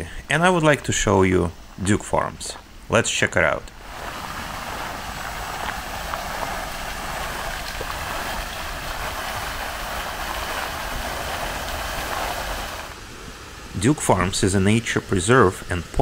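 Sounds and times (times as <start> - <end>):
fountain water splashing: 3.7 - 13.1.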